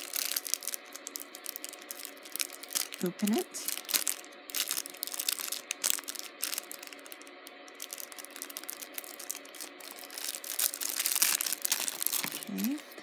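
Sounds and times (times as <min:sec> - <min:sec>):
bag crinkling: 0:00.0 - 0:12.8.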